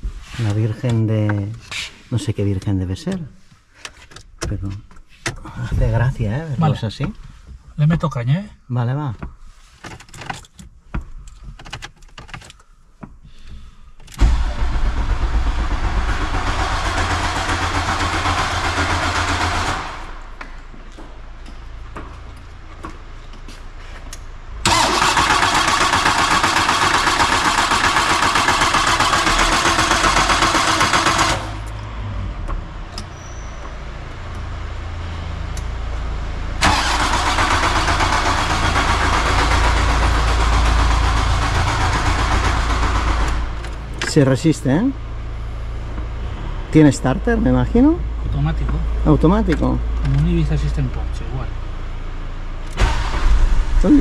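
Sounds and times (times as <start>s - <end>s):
starter motor cranking engine: 14.2s - 20.0s, 24.6s - 31.6s, 36.6s - 43.7s, 52.7s - 53.6s.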